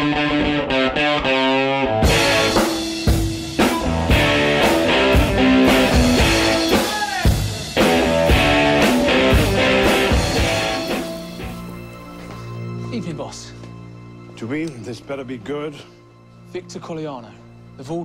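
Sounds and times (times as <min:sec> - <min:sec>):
rock music with guitar and drums: 0:00.0 - 0:12.8.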